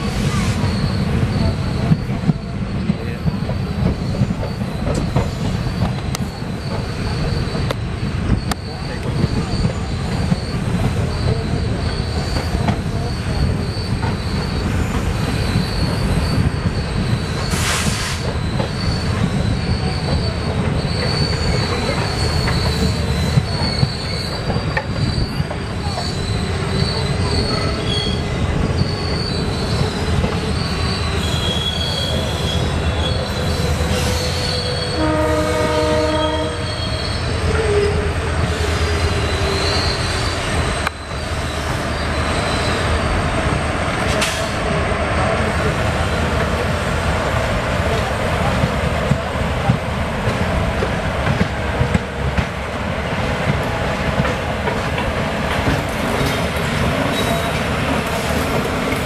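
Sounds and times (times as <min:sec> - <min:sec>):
faint high squeal: 0:00.0 - 0:03.2, 0:04.0 - 0:43.3, 0:57.1 - 0:58.5
train wheels rumbling on rails: 0:00.0 - 0:59.0
train horn toot: 0:33.6 - 0:39.1.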